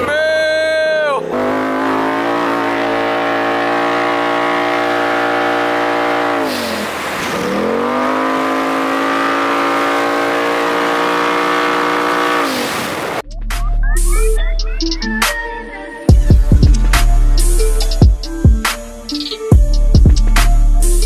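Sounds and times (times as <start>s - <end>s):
engine with loud exhaust: 1.2s - 13.2s.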